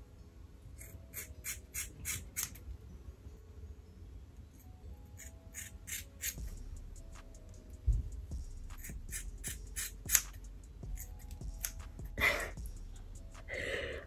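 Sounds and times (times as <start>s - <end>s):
scissors snipping hair: 0.8s - 2.6s, 4.6s - 6.5s, 8.7s - 12.2s.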